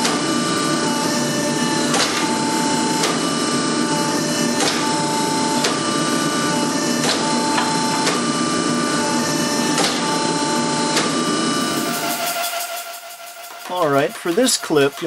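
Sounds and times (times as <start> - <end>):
hydraulic pump whine: 0.0 - 15.0.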